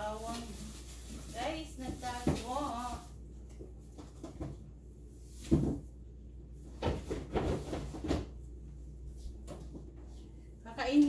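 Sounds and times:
objects knocking and clunking: 3.4s - 4.8s, 5.4s - 6.0s, 6.6s - 8.4s.

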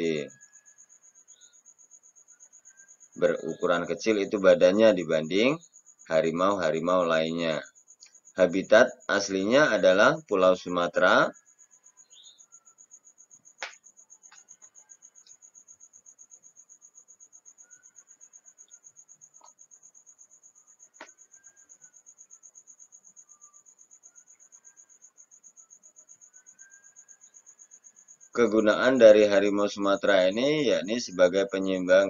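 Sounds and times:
faint cricket chirping: 0.0s - 32.0s.

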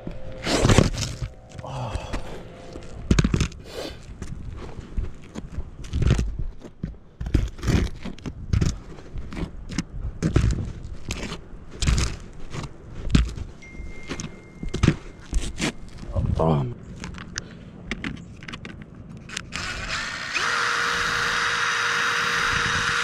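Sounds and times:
thuds and scrapes on shingles: 3.1s - 13.6s.

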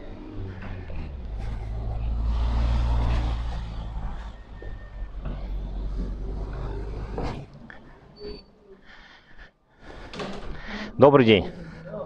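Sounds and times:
vehicle engine humming: 0.0s - 8.2s.

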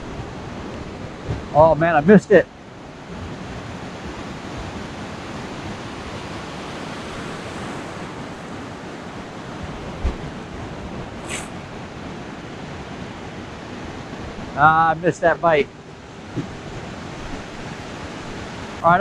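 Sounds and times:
ocean surf breaking on sand: 0.0s - 19.0s
brief high hiss: 11.2s - 11.6s.

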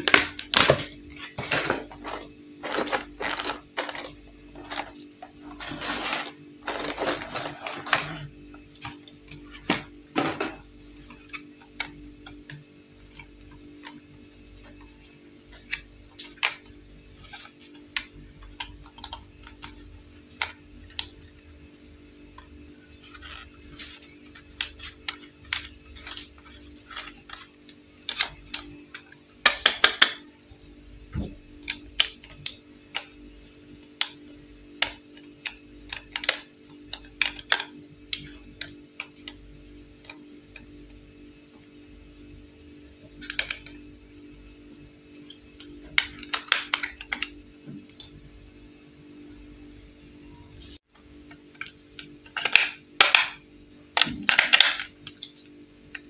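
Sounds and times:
plastic packaging rustle: 0.0s - 8.3s
faint steady hum: 0.0s - 56.0s.

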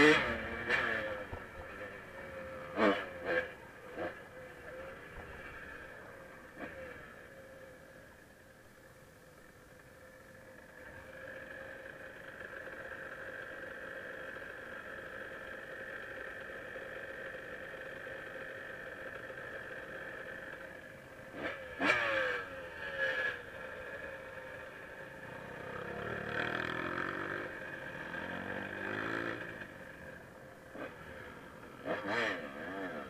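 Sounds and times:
dirt bike engine revving: 0.0s - 7.3s, 21.3s - 33.0s
dirt bike engine idling: 0.0s - 33.0s.

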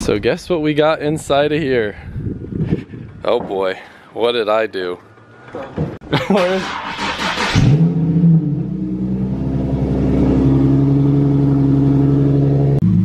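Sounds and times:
car engine starting and idling: 5.2s - 13.0s.

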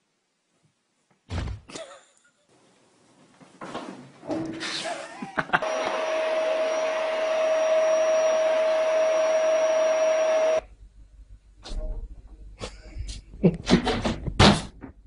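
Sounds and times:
whirring motor hum: 5.6s - 10.7s.

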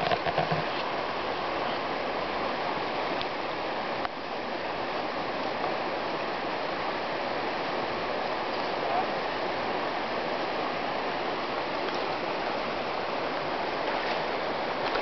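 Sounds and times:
river water flowing: 0.0s - 15.0s.

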